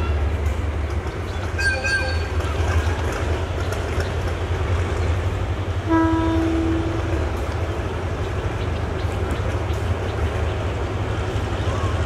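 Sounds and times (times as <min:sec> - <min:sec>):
low train rumble: 0:00.0 - 0:12.0
locomotive horn blast: 0:05.8 - 0:07.2.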